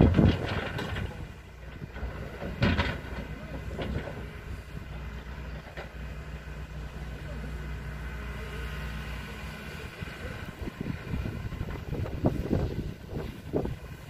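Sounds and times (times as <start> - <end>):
metal clanks and knocks: 0.0 - 4.4
diesel engine running: 0.0 - 14.0.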